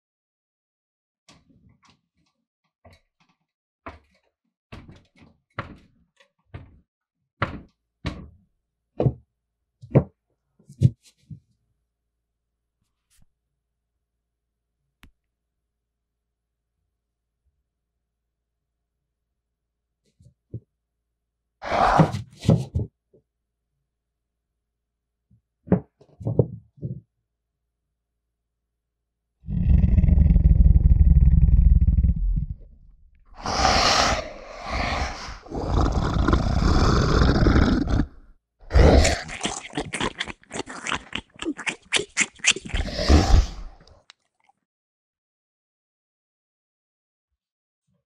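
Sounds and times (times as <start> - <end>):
harsh breathy growling exhale: 21.6 - 22.2, 29.5 - 32.6, 33.3 - 40.1, 42.7 - 43.8.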